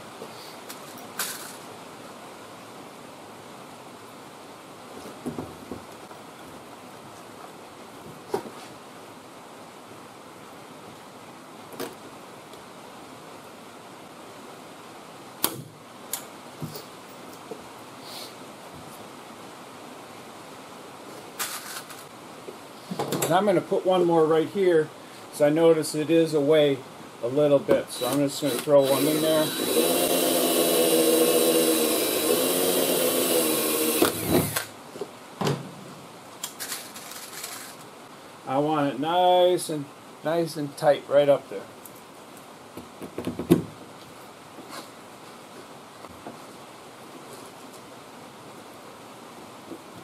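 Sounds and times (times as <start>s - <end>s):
steady hiss: 0.0s - 50.0s
cordless drill boring sheet metal: 28.0s - 34.7s.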